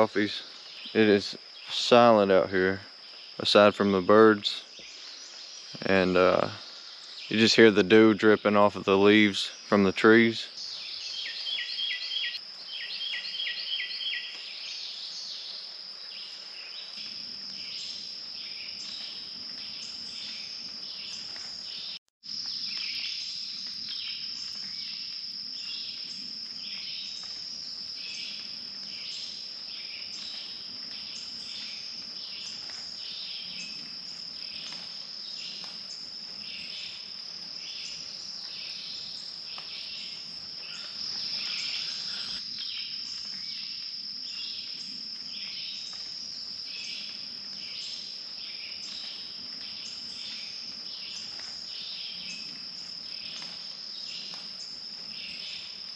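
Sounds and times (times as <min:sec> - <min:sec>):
birds chirping and singing: 0:10.5 - 0:15.3, 0:37.6 - 0:42.4
high-pitched insect drone: 0:22.4 - 0:46.1.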